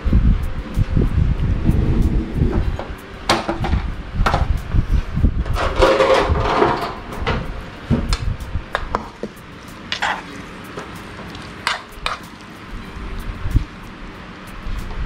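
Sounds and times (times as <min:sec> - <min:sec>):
dishes and utensils clinking: 0:05.5 - 0:07.4, 0:08.8 - 0:12.7.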